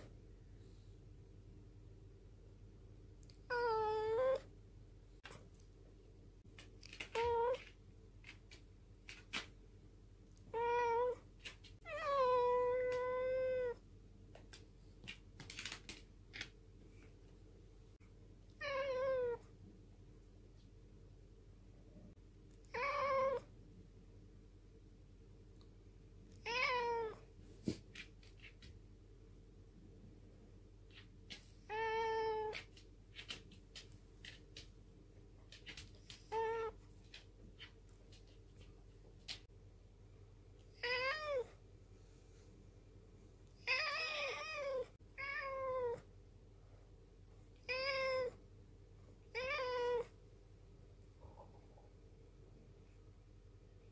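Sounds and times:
cat meowing: 3.5s - 4.5s, 10.5s - 11.2s, 11.8s - 13.8s, 18.5s - 19.4s, 22.7s - 23.5s, 26.4s - 27.2s, 40.8s - 41.6s, 43.6s - 46.0s, 47.6s - 48.4s, 49.3s - 50.1s.

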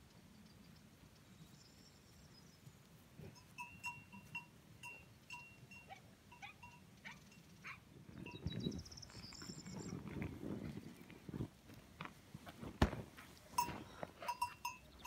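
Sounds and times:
small bell clinking: 3.4s - 7.4s, 13.6s - 15.0s
knocks and rustles on grass: 9.3s - 14.4s.

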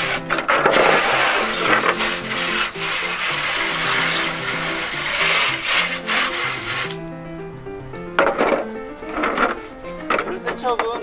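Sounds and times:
hose water spraying on plastic: 0.0s - 7.1s
background music: 0.0s - 11.0s.

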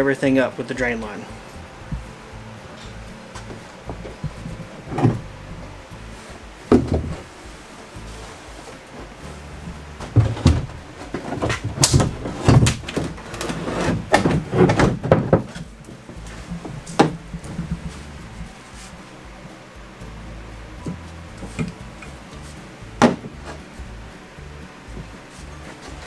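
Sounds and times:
bathtub knocking and scraping: 3.4s - 5.5s, 6.7s - 7.3s, 9.6s - 18.4s, 23.0s - 23.6s.

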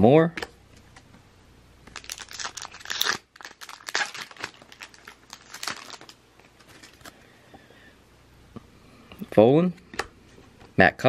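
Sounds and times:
card pack wrapper tearing: 1.9s - 7.2s.

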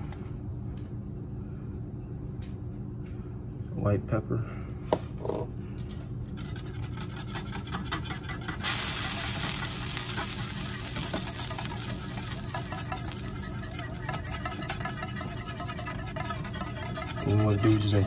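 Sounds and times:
whisk scraping metal saucepan: 6.3s - 18.0s.

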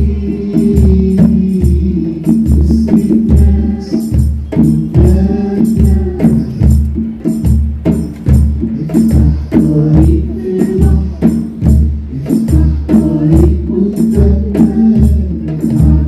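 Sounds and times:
light percussion strokes: 0.0s - 16.0s
music with steady bass beat: 0.0s - 16.0s.

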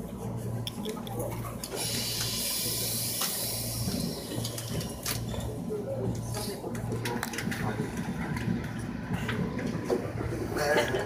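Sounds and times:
low pulsing hum: 0.0s - 10.9s
compressed air hissing: 1.7s - 4.6s.

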